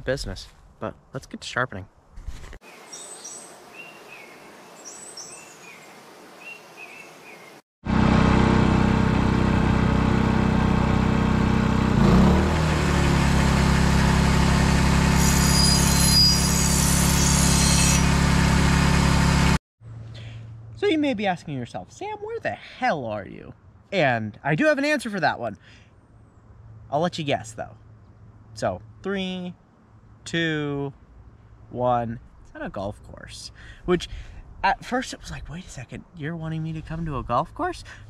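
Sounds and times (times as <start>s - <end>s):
birds chirping: 2.7s - 7.6s
machine drone with low hum: 7.9s - 12.0s.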